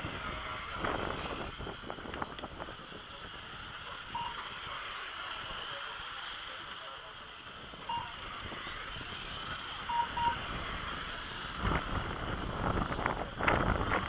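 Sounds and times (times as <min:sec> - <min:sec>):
wind buffeting microphone: 0:00.0 - 0:04.3, 0:07.6 - 0:14.0
lap timer beeps: 0:04.2 - 0:04.4, 0:07.9 - 0:08.2, 0:09.9 - 0:10.4.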